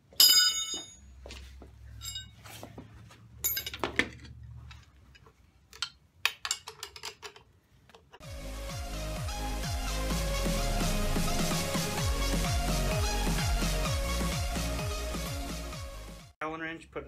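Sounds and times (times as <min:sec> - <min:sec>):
steel parts clanking: 0:02.0 - 0:02.4
electronic background music: 0:08.2 - 0:16.4.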